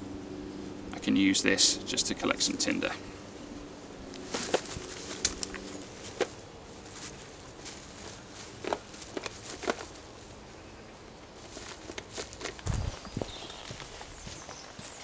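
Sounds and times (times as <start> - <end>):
cloth crackling and rustling: 4.1 - 10.4, 11.4 - 15.0
feet shifting on leaf litter: 4.1 - 10.4, 11.3 - 15.0.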